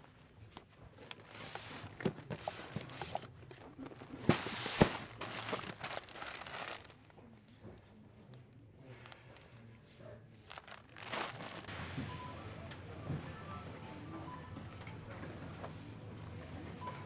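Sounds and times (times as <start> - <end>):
plastic packets crinkling: 1.0 - 7.2, 10.4 - 11.7.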